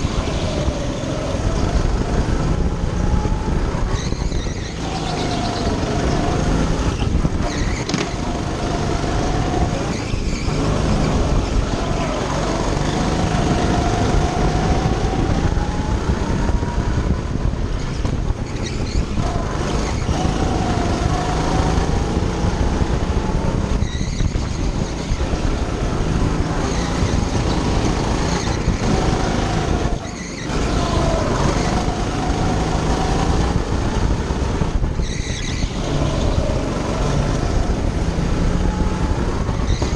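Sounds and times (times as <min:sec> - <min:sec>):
go-kart engine revving: 0:00.0 - 0:39.9.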